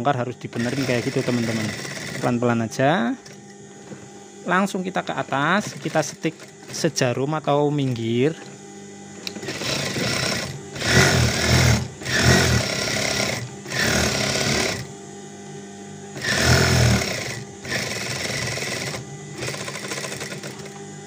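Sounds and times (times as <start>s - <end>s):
sewing machine stitching: 0.6s - 2.3s, 5.5s - 6.8s, 9.4s - 14.9s, 16.2s - 20.8s.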